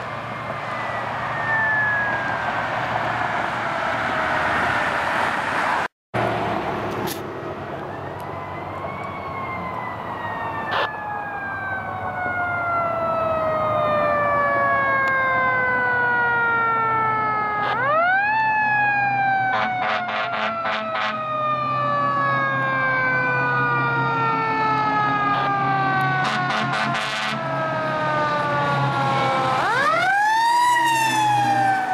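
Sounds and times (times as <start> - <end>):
short horn blasts: 19.5 - 21.2, 26.2 - 27.4.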